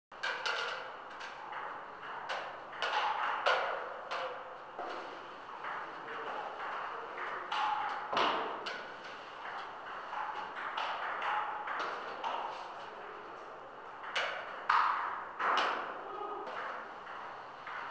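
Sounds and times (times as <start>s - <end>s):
ping-pong ball bouncing: 0.2s - 12.7s, 13.8s - 17.9s.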